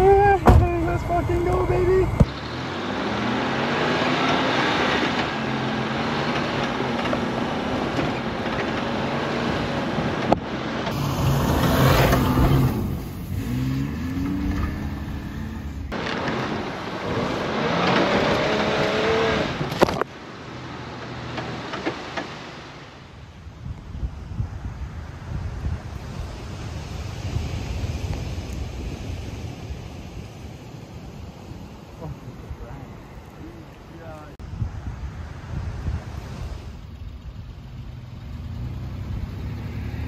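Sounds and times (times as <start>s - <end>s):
engine working hard: 0.0s - 20.1s
wheels churning dirt: 0.0s - 22.9s
wind on microphone: 23.2s - 38.0s.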